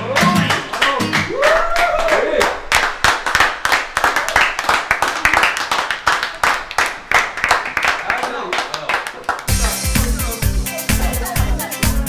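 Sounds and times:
people clapping: 0:00.0 - 0:11.4.

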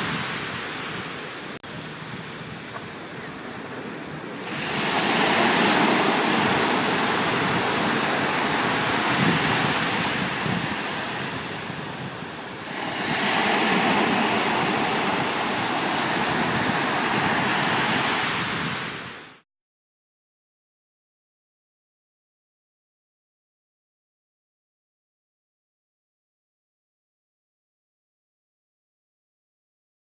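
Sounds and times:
ocean waves rushing: 0:00.0 - 0:19.4
wind hiss: 0:00.0 - 0:19.4.

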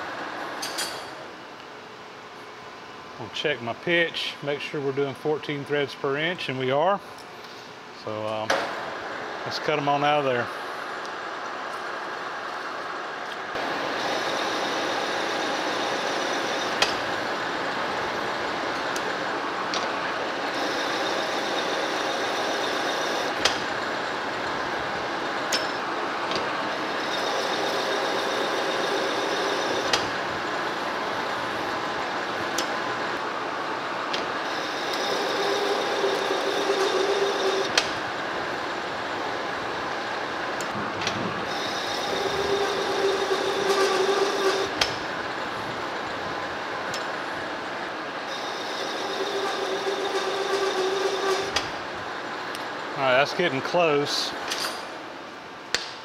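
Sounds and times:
metal lathe running: 0:13.6 - 0:53.6.

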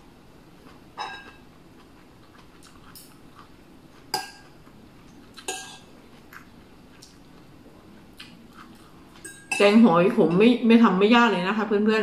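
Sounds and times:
metal spoon clinking on dishes: 0:01.0 - 0:01.4, 0:04.1 - 0:04.5, 0:05.4 - 0:05.9, 0:09.2 - 0:10.4.

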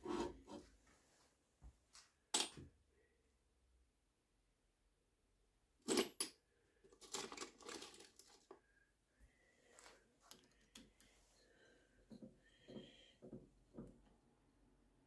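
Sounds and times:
small metal pieces clinking: 0:07.0 - 0:08.5.

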